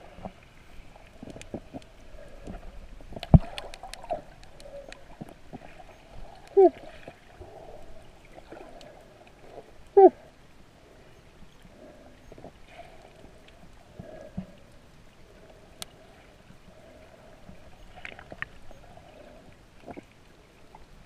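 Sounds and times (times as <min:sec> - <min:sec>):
underwater water wash: 0:00.0 - 0:21.0
small clicks and knocks: 0:01.2 - 0:05.7
muffled voice through water: 0:06.4 - 0:07.1, 0:09.9 - 0:10.3.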